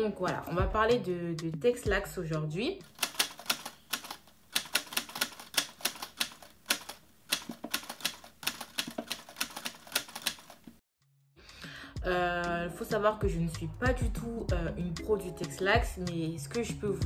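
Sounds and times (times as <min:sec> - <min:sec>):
typewriter keys clacking: 0:02.9 - 0:10.8.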